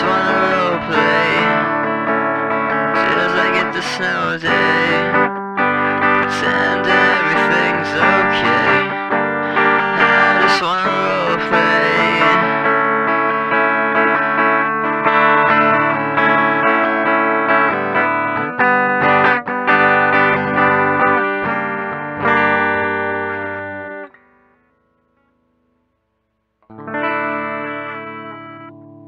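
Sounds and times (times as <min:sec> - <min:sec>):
distorted electric guitar chords: 0:00.0 - 0:29.0.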